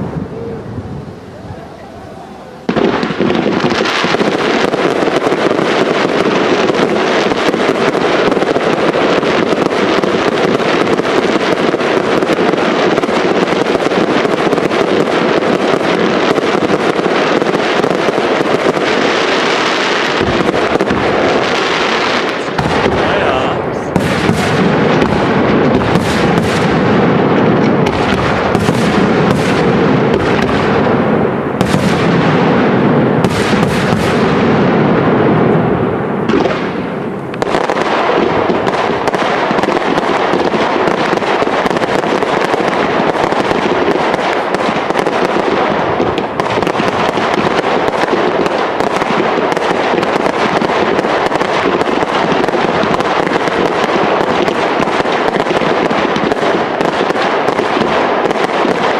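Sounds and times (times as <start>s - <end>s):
fireworks bursting with deep bangs: 0.0s - 58.9s
fireworks crackling: 0.0s - 58.9s.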